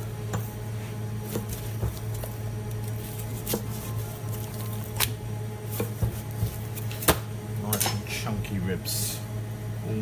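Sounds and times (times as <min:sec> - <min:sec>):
steady low hum: 0:00.0 - 0:10.0
knife slicing ribs: 0:01.2 - 0:07.3.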